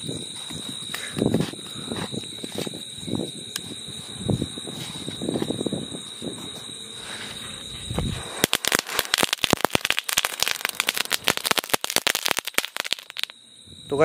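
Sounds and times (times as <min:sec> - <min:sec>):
firecrackers crackling: 0:07.9 - 0:13.4.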